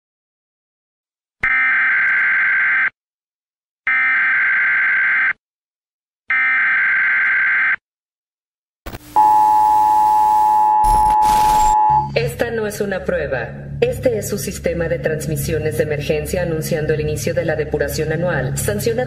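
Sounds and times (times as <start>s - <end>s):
harsh electronic data bursts: 9.0s - 12.1s
two-tone attention signal: 9.2s - 12.2s.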